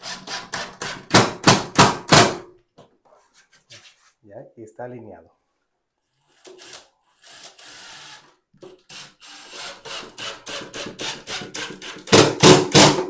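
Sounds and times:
cordless drill driving a screw: 6.3 - 8.3, 8.9 - 12.0.

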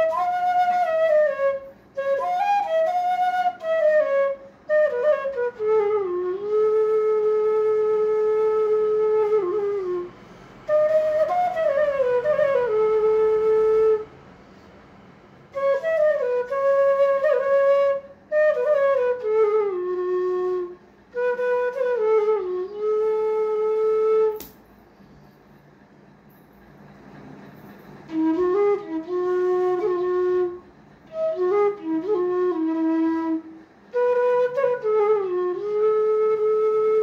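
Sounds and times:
bamboo flute slow melody: 0.0 - 14.2, 15.5 - 25.2, 27.9 - 37.0
sharp click: 24.3 - 24.7.

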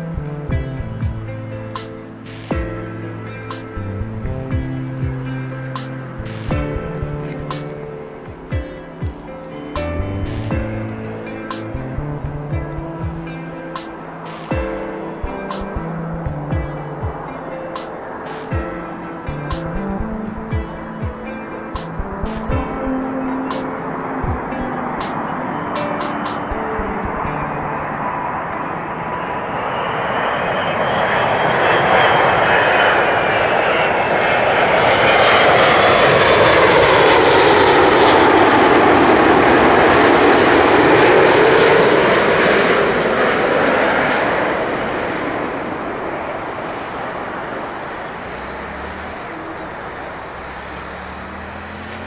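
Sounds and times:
jet airliner passing overhead: 0.0 - 52.0.

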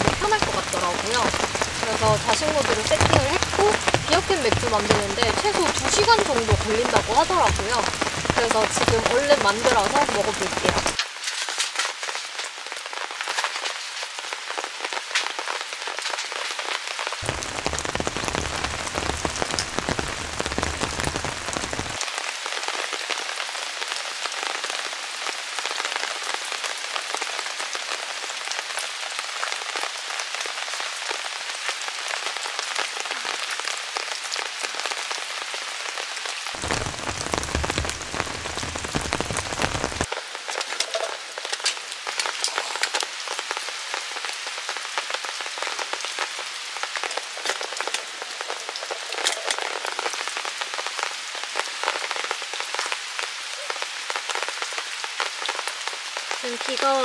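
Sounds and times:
raindrop hits: 0.0 - 22.5, 36.4 - 53.0
heavy rain: 0.0 - 57.0.

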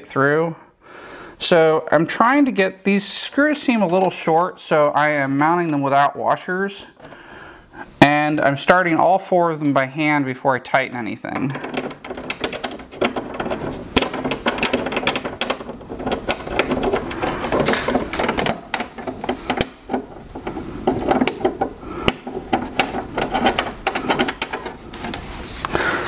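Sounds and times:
metal bracket clicking and rattling: 11.4 - 25.3
small taps and scrapes: 11.6 - 25.8.

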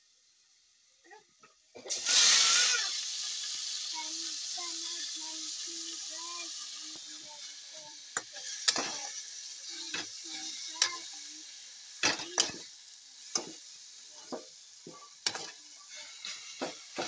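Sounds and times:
greens sizzling in oil: 0.0 - 17.0
wooden spatula scraping a pan: 8.4 - 9.1, 14.2 - 17.0.

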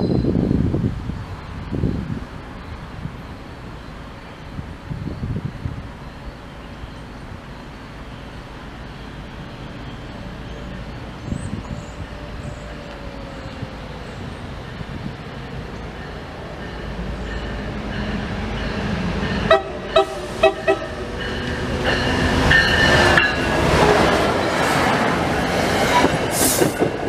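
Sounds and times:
diesel locomotive engine and wheels: 0.0 - 27.0
train horn blasts: 19.5 - 21.6.

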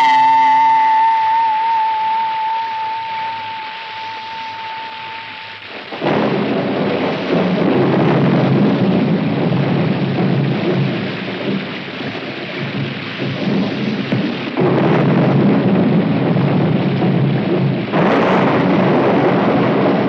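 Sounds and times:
bell-like ringing tone: 0.0 - 5.6
heavy rain: 0.0 - 20.0
thunder clap: 0.0 - 20.0.

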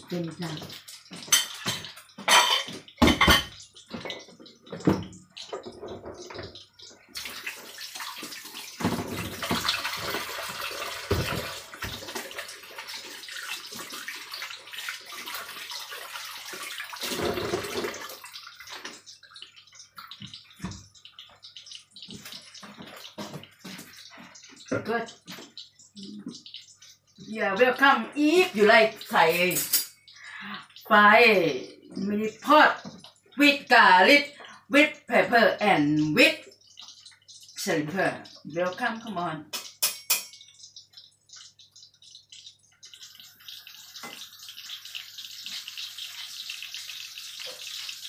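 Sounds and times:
patties sizzling in oil: 0.0 - 48.0.

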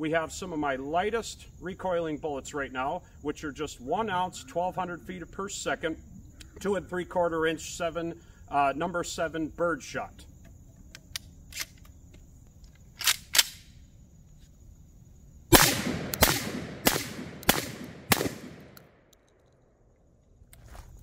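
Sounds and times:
gun handling clicks: 10.8 - 13.7, 15.6 - 19.6
shotgun shots echoing: 15.5 - 19.0.

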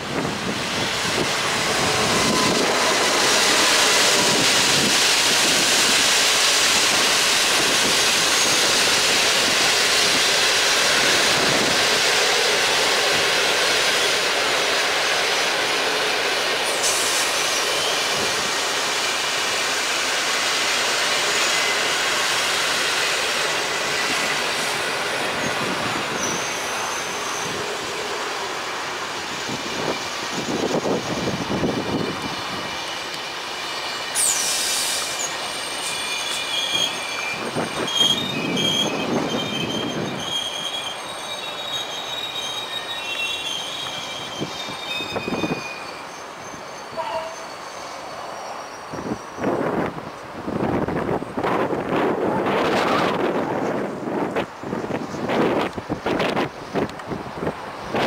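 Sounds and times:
train wheels rolling on rail: 0.0 - 58.0
faint high wheel squeal: 1.8 - 4.6, 16.7 - 18.3, 21.0 - 28.8, 32.7 - 49.8.

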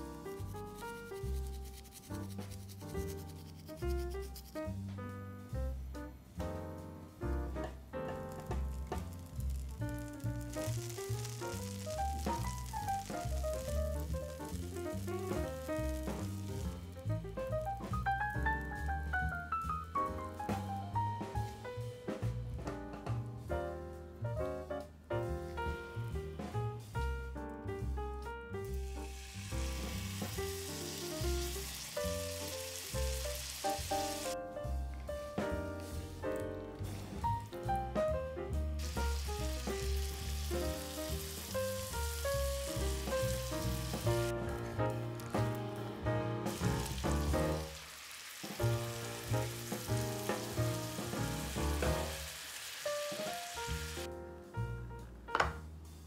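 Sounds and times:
background music with piano and bass: 0.0 - 56.0
food sizzling in frying pan: 8.3 - 17.2, 28.8 - 34.4, 38.8 - 45.5, 46.4 - 54.1.

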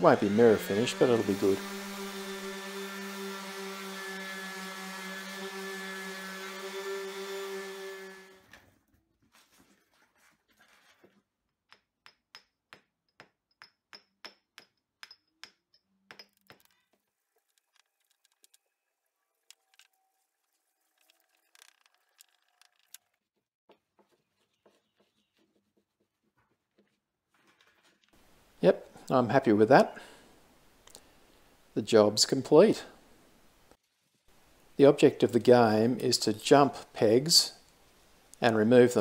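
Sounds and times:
orbital sander humming: 0.0 - 8.4.

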